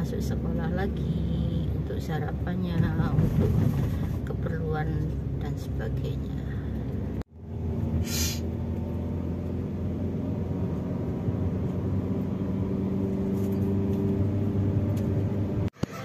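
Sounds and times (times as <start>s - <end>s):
car engine and road rumble: 0.0s - 16.0s
short hiss: 8.0s - 8.4s.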